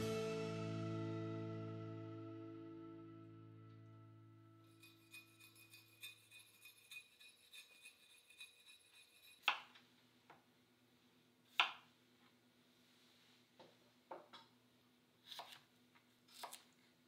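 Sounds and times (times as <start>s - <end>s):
knife chopping on cutting board: 15.2s - 15.7s, 16.3s - 16.7s.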